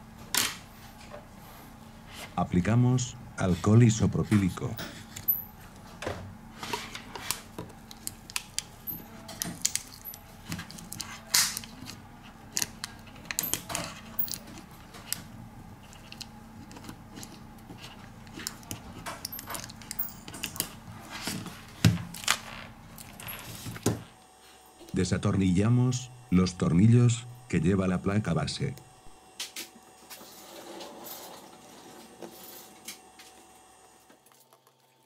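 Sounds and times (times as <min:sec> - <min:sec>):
faint steady hum: 0:00.0 - 0:35.0.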